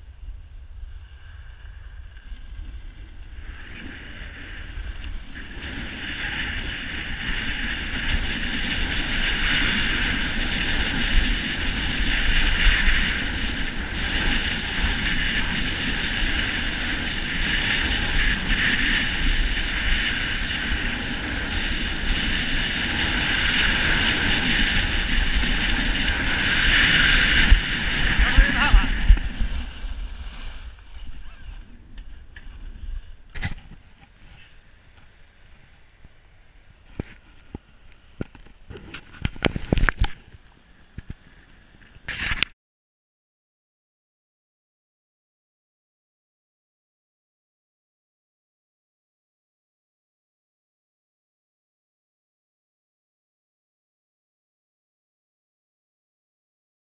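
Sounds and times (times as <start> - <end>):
skis hissing over snow: 0.0 - 33.5
wind rushing over microphone: 0.0 - 41.2.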